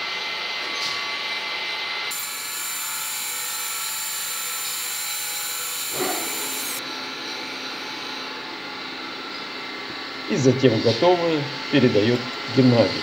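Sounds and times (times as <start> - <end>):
lathe machine hum: 0.0 - 13.0
high hiss of cutting: 2.1 - 6.8.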